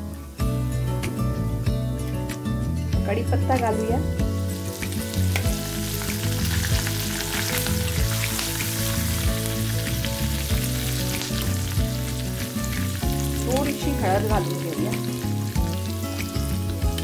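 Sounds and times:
leaves sizzling in hot oil: 0.0 - 2.2, 3.1 - 17.0.

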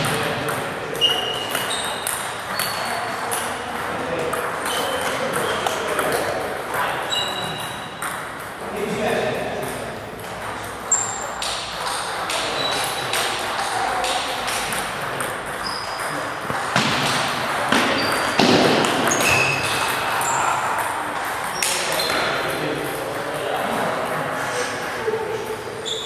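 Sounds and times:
table tennis balls clicking: 0.0 - 8.7, 9.5 - 23.6.

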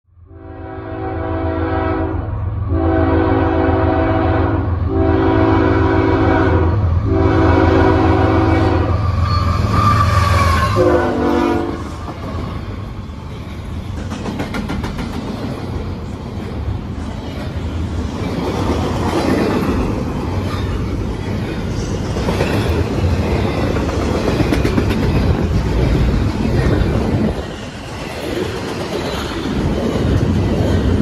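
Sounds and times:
locomotive air horn blasts: 0.3 - 12.0
train cars rolling by: 1.7 - 31.0.

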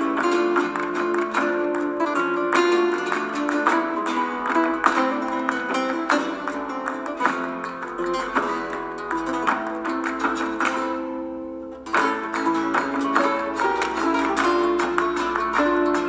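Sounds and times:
flamenco acoustic guitar: 0.0 - 16.0.

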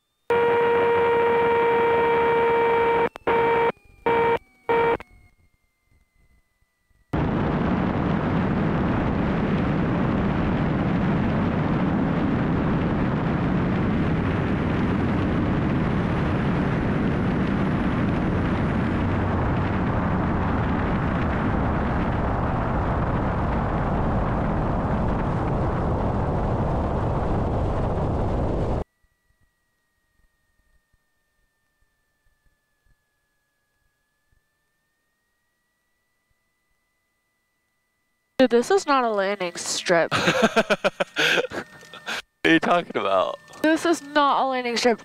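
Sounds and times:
propeller aircraft engine running: 7.2 - 28.8.

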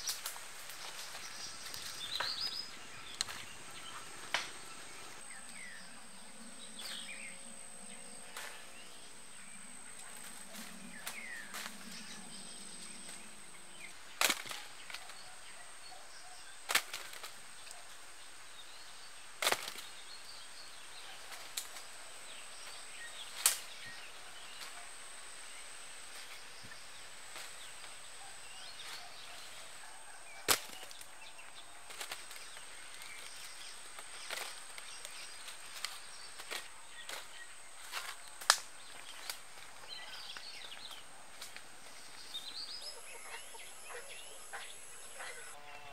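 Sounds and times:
high insect drone: 0.0 - 15.1, 30.6 - 45.9
gourds cracking off vines: 8.2 - 8.9, 14.0 - 15.2, 16.6 - 17.4, 19.4 - 20.0, 23.2 - 23.8, 30.4 - 41.7.

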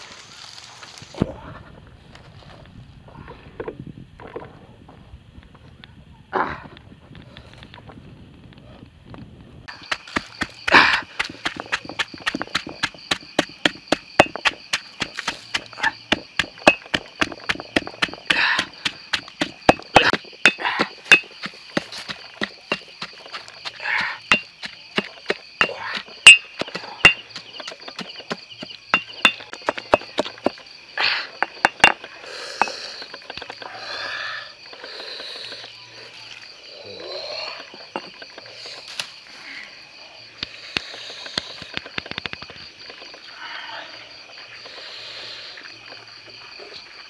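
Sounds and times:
insects trilling: 9.6 - 47.0
stone pestle pounding in mortar: 9.7 - 30.5
scraping and handling: 9.7 - 30.7, 37.6 - 39.2.

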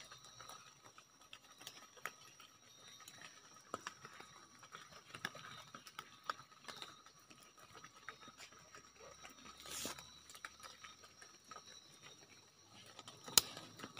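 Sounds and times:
rustling of phone and leaf litter: 9.4 - 10.3.

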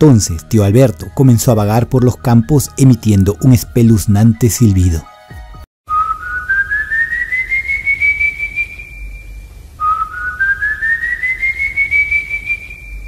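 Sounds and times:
eerie rising whistle: 5.9 - 13.0.

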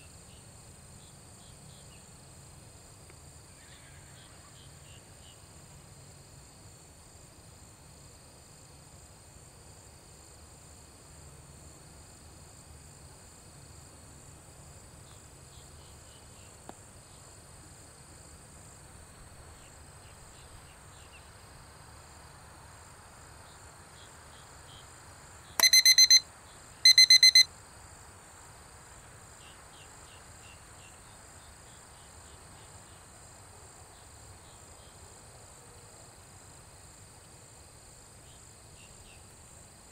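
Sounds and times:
insects chirring: 23.3 - 28.0
electronic alarm beeping: 25.6 - 26.2, 26.9 - 27.5.

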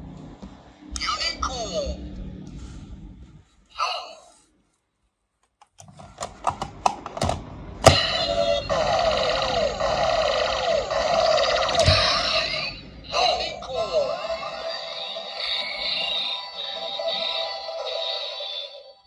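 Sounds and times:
toy belt synthesized tones: 8.0 - 19.0.

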